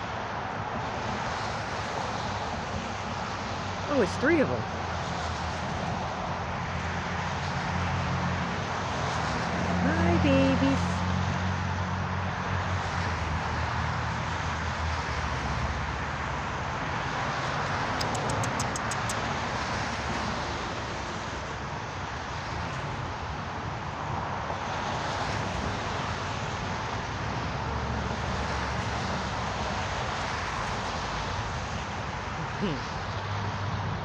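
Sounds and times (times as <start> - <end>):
high ticks: 17.9 - 19.4.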